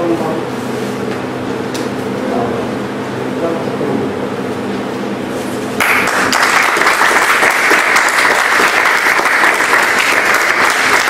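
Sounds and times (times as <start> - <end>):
small group clapping: 5.8 - 11.0.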